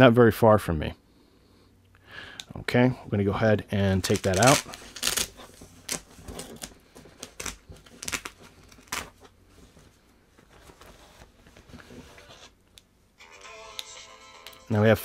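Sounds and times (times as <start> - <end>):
hook-and-loop closure ripping: 3.9 - 9.2
fabric bag crinkling: 3.9 - 9.3.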